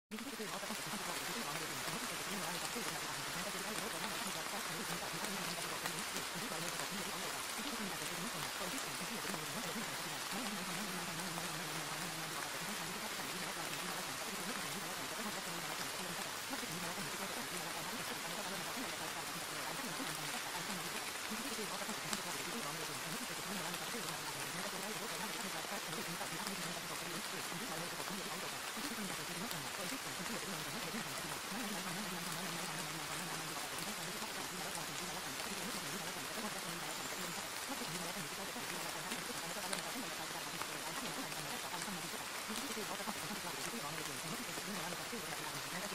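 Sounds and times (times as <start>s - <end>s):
faint low voice: 0.1s - 45.9s
rain-like masking hiss: 0.1s - 45.9s.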